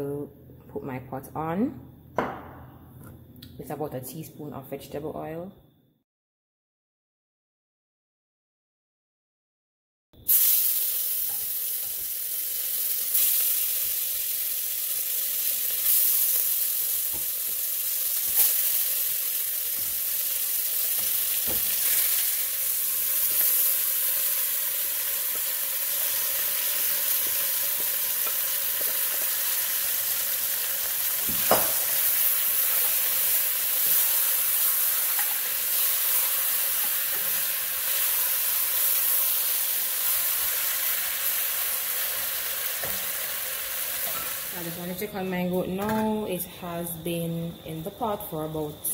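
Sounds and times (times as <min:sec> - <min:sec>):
wooden spoon knocking on pot: 0:02.2 - 0:02.7
meat sizzling in hot oil: 0:10.2 - 0:44.8.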